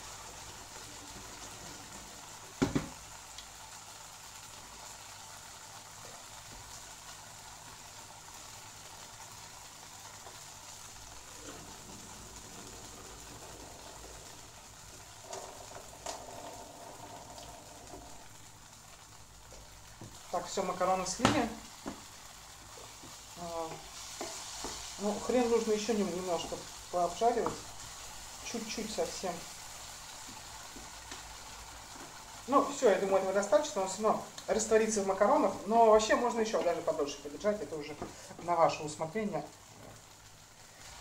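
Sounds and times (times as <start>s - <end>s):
food sizzling in frying pan: 0.0s - 41.0s
knocks on pan: 2.6s - 3.0s.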